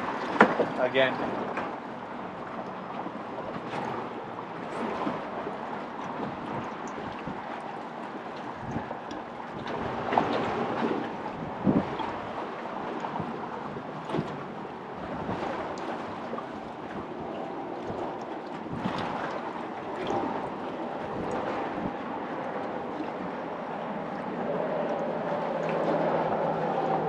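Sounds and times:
choppy water: 0.0s - 27.0s
wind buffeting microphone: 0.0s - 27.0s.

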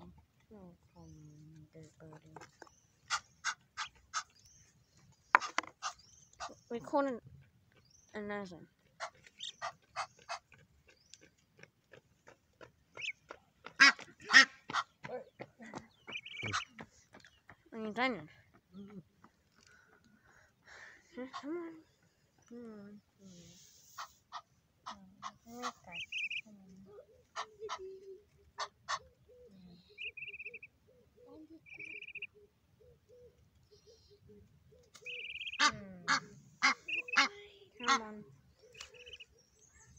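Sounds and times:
goslings pecking on paving: 0.0s - 39.9s
goslings peeping in rapid trills: 3.0s - 4.4s, 9.0s - 10.5s, 12.9s - 15.0s, 15.9s - 16.9s, 23.9s - 26.5s, 28.5s - 29.1s, 30.0s - 30.8s, 31.6s - 32.4s, 35.0s - 39.3s
harsh goose calls: 13.0s - 15.0s, 16.1s - 16.8s, 23.8s - 26.4s, 28.6s - 29.1s, 31.7s - 32.3s, 35.0s - 39.3s.

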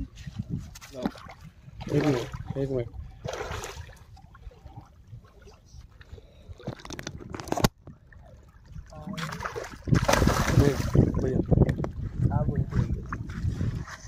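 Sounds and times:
fish thrashing and splashing: 6.7s - 11.2s.

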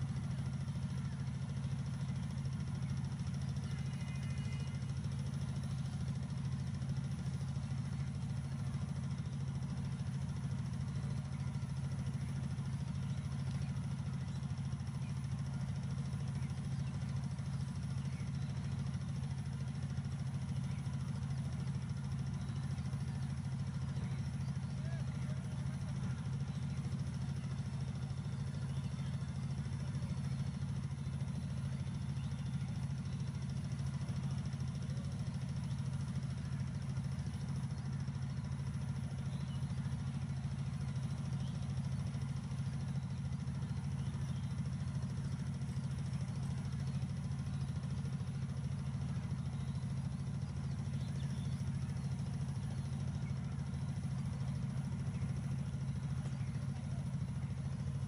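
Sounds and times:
distant diesel locomotive droning: 0.0s - 58.0s.

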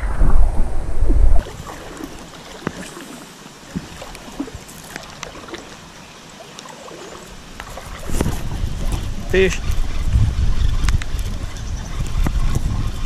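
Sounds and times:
low rumble on microphone: 0.0s - 2.2s, 8.0s - 13.0s
light rain on a river: 1.4s - 9.4s.

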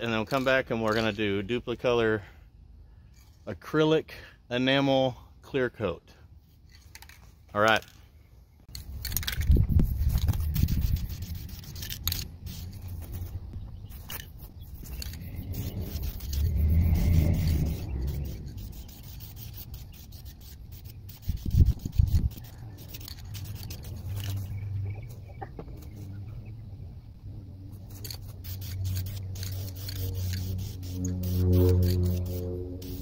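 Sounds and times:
aerosol spray can hissing: 9.5s - 13.3s, 13.9s - 24.4s, 27.9s - 33.0s.

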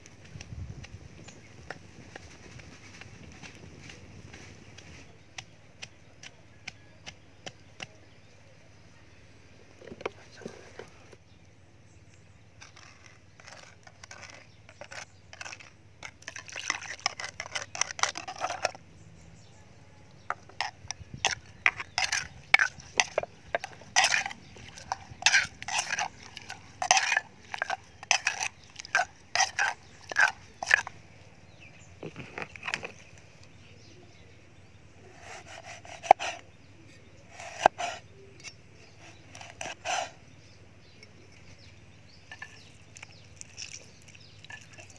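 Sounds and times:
pestle pounding in mortar: 20.3s - 30.9s.

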